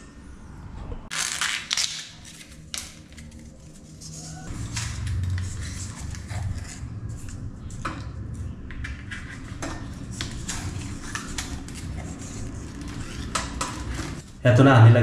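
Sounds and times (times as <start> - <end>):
low background hum: 0.0 - 15.0
tape being unwound: 1.1 - 7.4.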